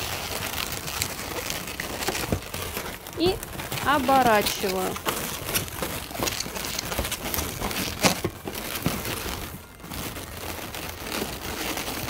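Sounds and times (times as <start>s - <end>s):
balloons rubbing and scraping: 0.0s - 12.0s.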